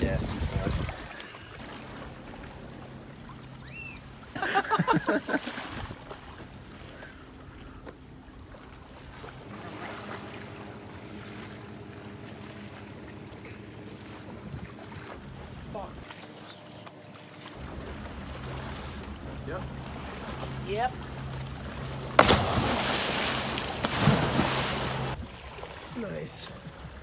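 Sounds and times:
wind on microphone: 0:00.0 - 0:01.2
sea water against rocks: 0:00.0 - 0:27.0
steady low hum: 0:01.6 - 0:27.0.

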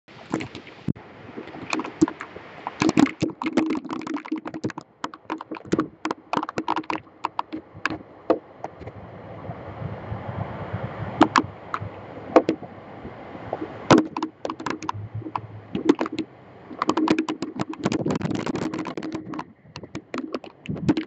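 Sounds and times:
raindrops tapping on webcam: 0:00.2 - 0:08.9, 0:11.2 - 0:12.7, 0:13.9 - 0:21.0
low wind rush: 0:04.5 - 0:21.0.

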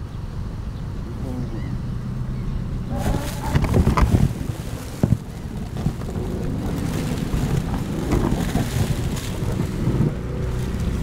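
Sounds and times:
wind rumble on microphone: 0:00.0 - 0:11.0
ice crunching against boat: 0:02.9 - 0:11.0.

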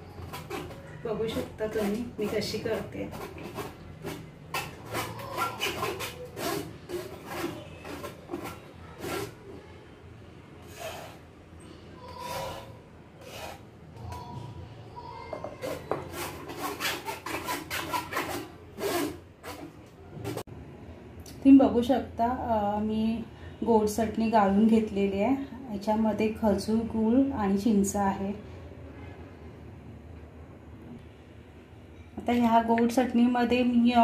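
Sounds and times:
spoon scraping through mesh strainer: 0:00.0 - 0:09.6, 0:10.6 - 0:11.2, 0:12.0 - 0:13.7.

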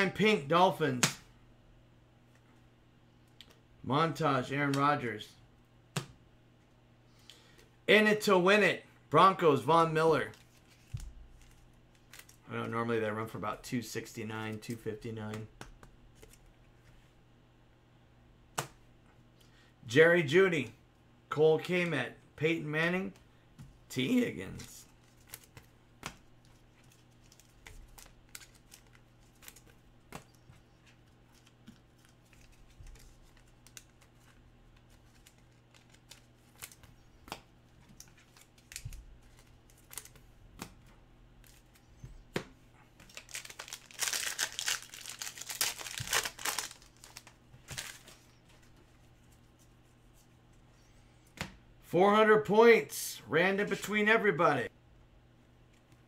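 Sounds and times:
wrapper crinkling and tearing: 0:43.0 - 0:48.2.

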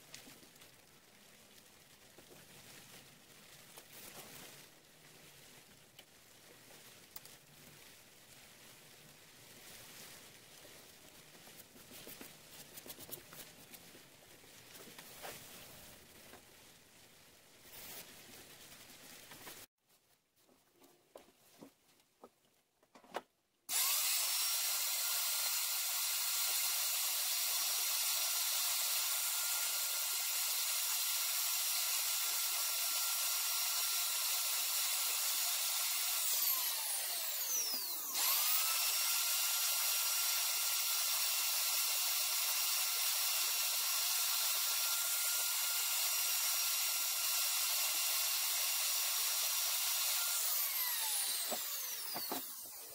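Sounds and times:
electric router whining: 0:23.7 - 0:52.9.

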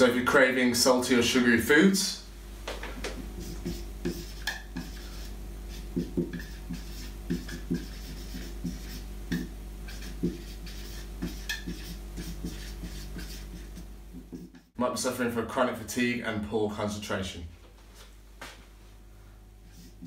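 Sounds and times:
steady low hum: 0:00.0 - 0:20.0
marker squeaking on whiteboard: 0:03.0 - 0:14.7.

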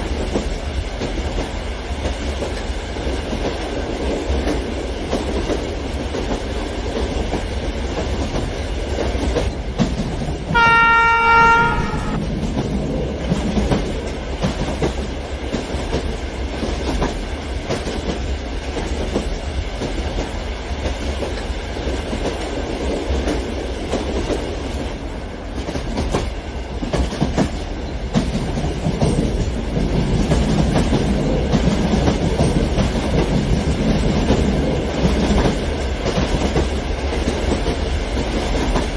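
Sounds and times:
train horn: 0:10.5 - 0:12.3.

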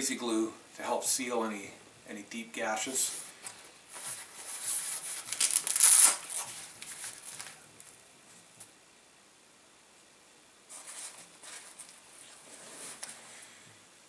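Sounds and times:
nylon pouch rustling: 0:03.9 - 0:08.0.

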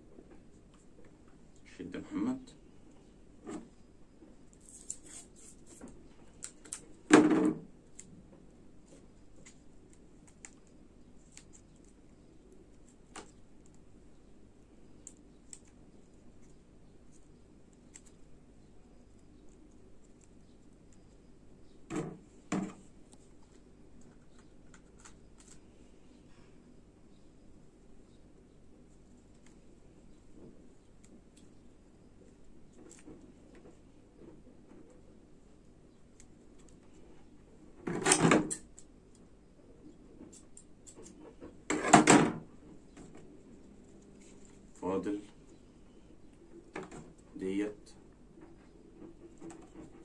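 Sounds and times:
faint rustling of cord: 0:42.7 - 0:46.4.

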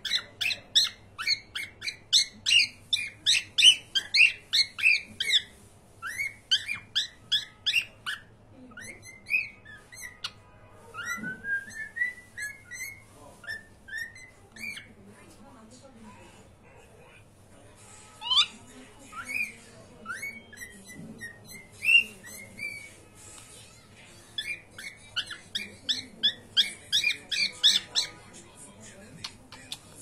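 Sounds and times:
cockatiel whistling: 0:00.0 - 0:14.9, 0:18.2 - 0:23.0, 0:24.4 - 0:28.2.

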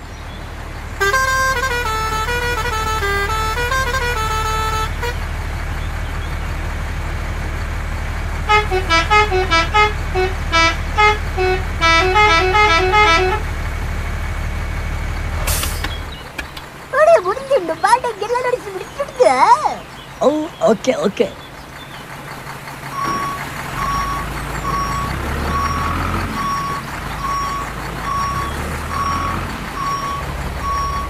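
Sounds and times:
musical horn tune: 0:01.0 - 0:05.2, 0:08.5 - 0:13.5.

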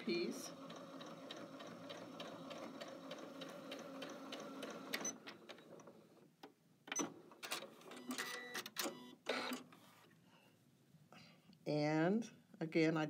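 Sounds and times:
sewing machine stitching: 0:00.0 - 0:06.0.

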